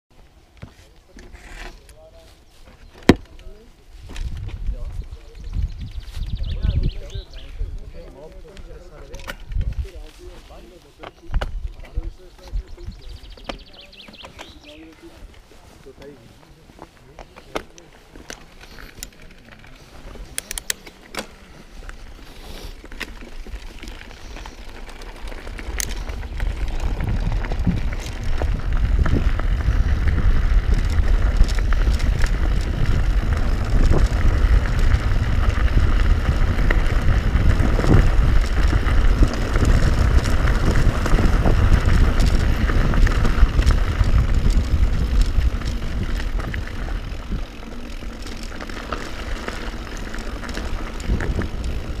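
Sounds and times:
tyre noise: 0.2 - 52.0
bike rattling over stones: 0.5 - 52.0
wind on microphone: 3.9 - 10.4, 22.0 - 52.0.

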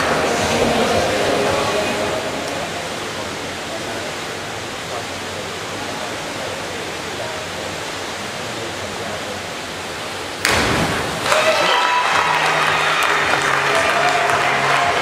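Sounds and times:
indoor pool hall hiss: 0.0 - 15.0
divers splashing into water: 10.4 - 15.0.

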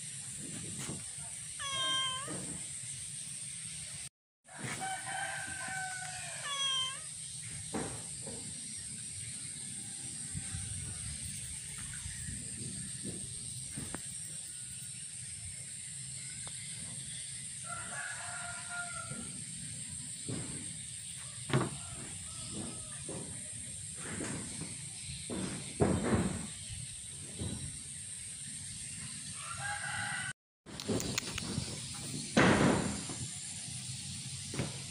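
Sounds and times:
cat meowing: 1.6 - 2.6, 6.0 - 7.2.

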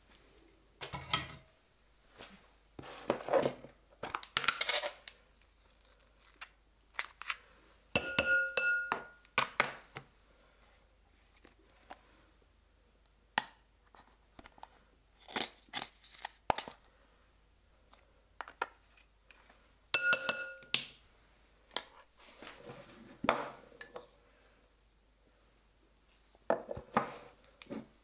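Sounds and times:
spoon clinking on glass bowl: 8.0 - 9.2, 19.9 - 20.8.

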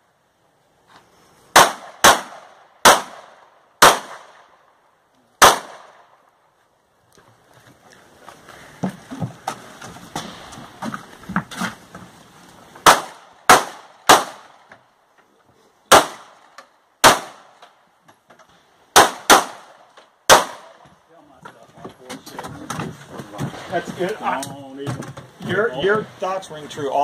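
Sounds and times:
loud sharp gunshots: 1.5 - 4.5, 5.4 - 6.1, 12.8 - 14.6, 15.9 - 17.6, 18.9 - 20.8
quiet knocks and scuffs: 6.6 - 12.8, 20.8 - 26.2.

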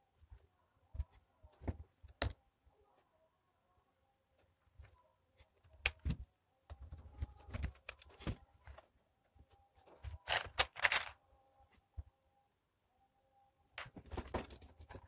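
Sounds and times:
plastic parts clicking and rattling: 9.8 - 11.2, 13.8 - 15.0
rummaging through plastic trays: 9.8 - 11.2, 13.8 - 15.0.

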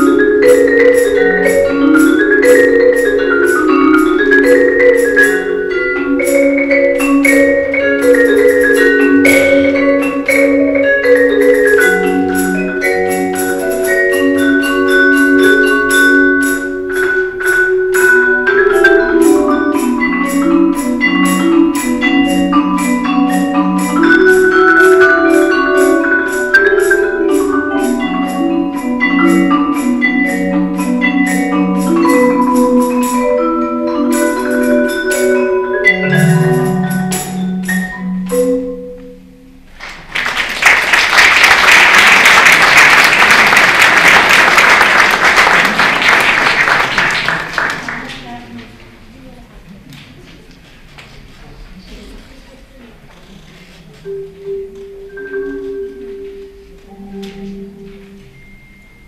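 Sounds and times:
marimba and vibraphone playing: 0.0 - 39.8, 40.6 - 46.6, 53.9 - 59.0
audience applause: 39.8 - 48.3.

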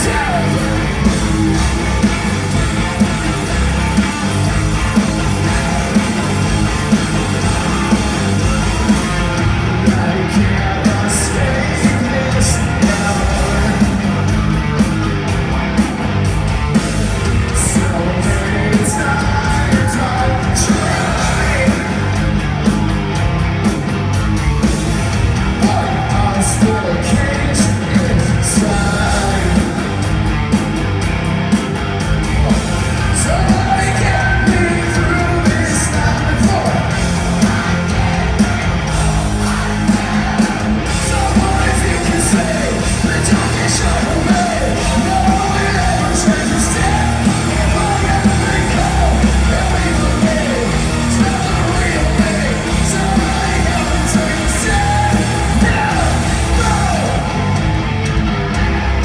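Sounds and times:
man singing: 0.0 - 1.8, 9.0 - 14.2, 17.5 - 22.2, 25.6 - 29.8, 32.4 - 38.2, 39.2 - 57.4
distorted electric guitars: 0.0 - 59.0
drums: 0.0 - 59.0.

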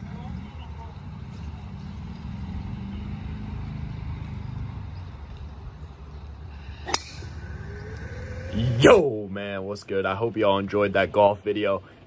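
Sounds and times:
low outdoor rumble: 3.8 - 12.0.

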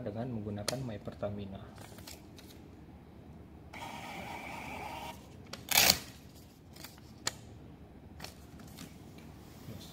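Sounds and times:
thermal printer buzzing: 3.7 - 5.2.

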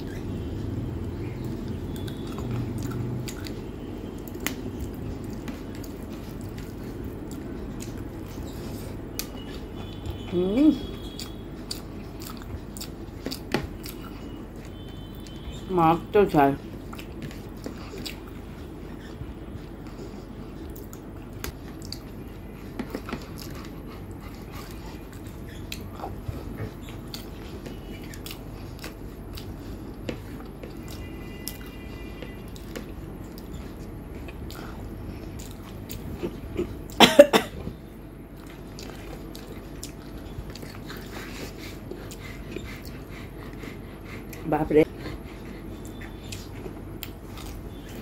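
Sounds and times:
person chewing food: 0.0 - 15.7, 16.6 - 48.0
steady low hum: 0.0 - 48.0
person coughing: 36.2 - 37.7.

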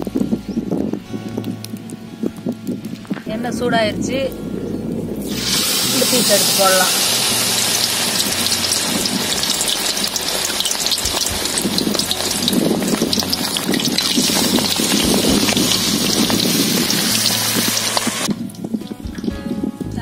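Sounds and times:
chicken deep-frying in oil: 5.2 - 19.4.

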